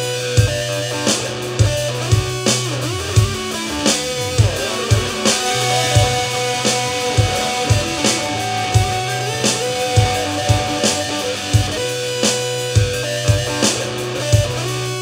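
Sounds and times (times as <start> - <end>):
drum kit beat: 0.0 - 15.0
low bass notes: 1.6 - 14.7
electric guitar bending notes: 2.9 - 14.2.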